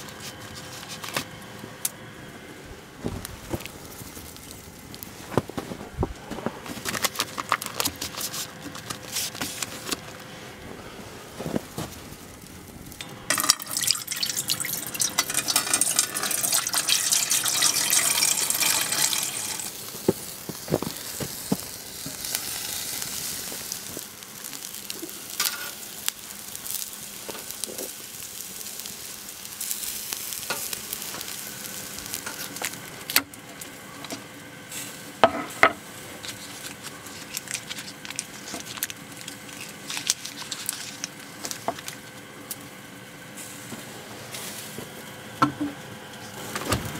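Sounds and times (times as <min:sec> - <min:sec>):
fire clicks and crackles: 0:00.0 - 0:45.1
sausages sizzling on a grill: 0:03.2 - 0:05.3, 0:11.3 - 0:45.5.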